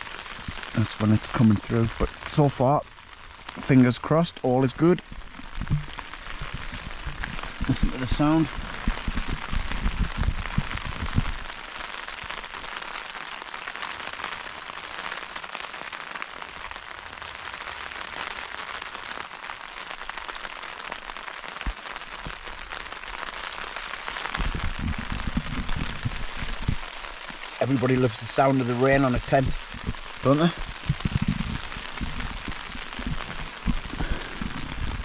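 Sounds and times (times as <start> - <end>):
heavy rain on tent: 0.0 - 35.0
low bumps: 5.0 - 11.4, 24.4 - 27.6, 29.1 - 35.0.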